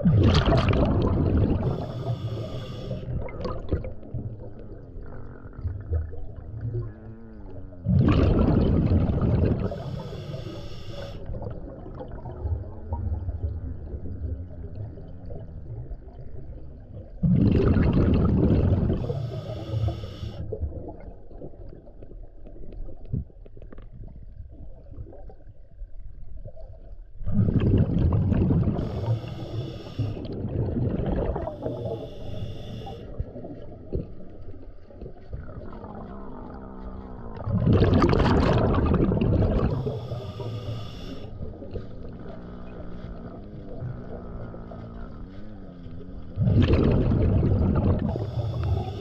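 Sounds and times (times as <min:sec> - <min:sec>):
exhaled bubbles bursting: 0:00.0 - 0:19.8, 0:20.4 - 0:25.5, 0:26.4 - 0:45.3, 0:46.2 - 0:49.0
low underwater rumble: 0:00.0 - 0:49.0
regulator hiss: 0:01.7 - 0:03.1, 0:09.7 - 0:11.2, 0:19.0 - 0:20.4, 0:28.8 - 0:30.3, 0:31.6 - 0:33.1, 0:39.7 - 0:41.3, 0:48.1 - 0:49.0.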